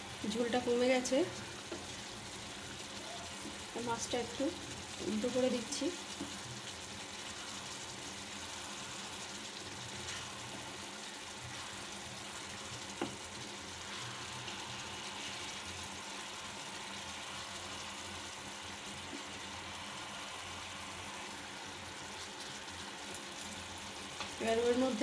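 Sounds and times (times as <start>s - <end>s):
curry bubbling and sizzling: 0.0s - 25.0s
wooden spatula stirring: 5.0s - 16.4s.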